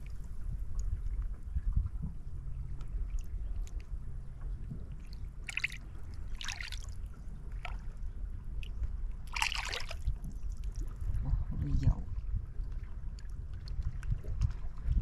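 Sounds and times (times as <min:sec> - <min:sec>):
low steady rumble: 0:00.0 - 0:15.0
seawater splashing and trickling: 0:02.5 - 0:11.2.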